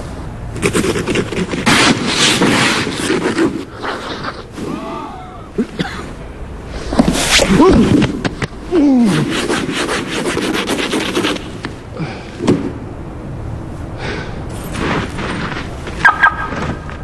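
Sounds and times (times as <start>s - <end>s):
snow scraped off a car: 0.6s - 4.8s, 14.5s - 16.8s.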